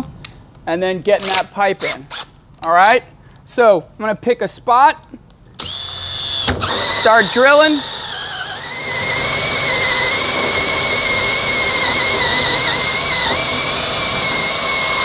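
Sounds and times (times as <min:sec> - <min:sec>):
power drill hole saw whine: 0:05.6 - 0:15.0.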